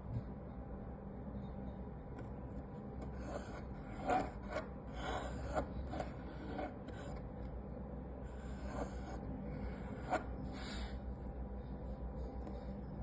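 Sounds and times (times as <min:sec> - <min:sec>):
pencil scratching on wood: 0:03.0 - 0:07.2, 0:08.3 - 0:11.0.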